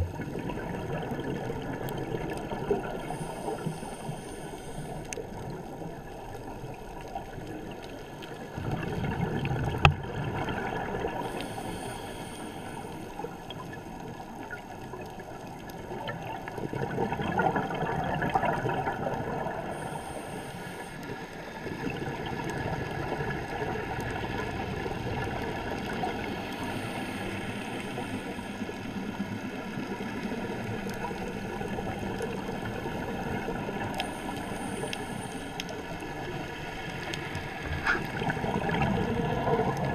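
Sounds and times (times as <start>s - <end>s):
bubbling: 0.0s - 4.0s, 4.6s - 11.6s, 13.3s - 20.4s, 28.1s - 39.9s
water rushing and gurgling underwater: 0.0s - 39.9s.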